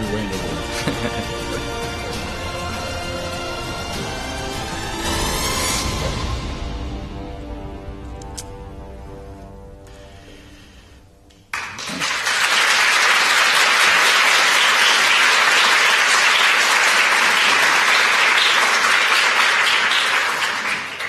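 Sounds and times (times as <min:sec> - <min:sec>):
audience applauding: 0:11.5 - 0:21.0.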